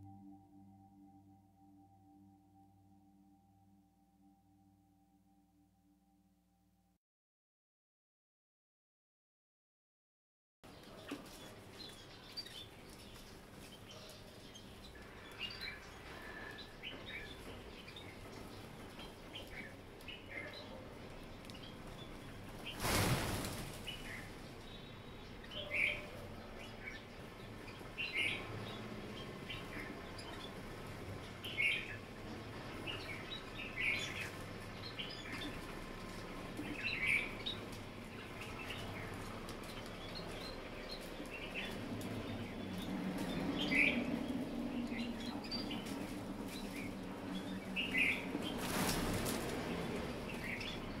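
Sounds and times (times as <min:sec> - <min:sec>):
low hum: 0:00.0 - 0:07.0
small birds chirping: 0:10.6 - 0:51.0
rush of wingbeats: 0:22.5 - 0:24.3, 0:45.7 - 0:50.9.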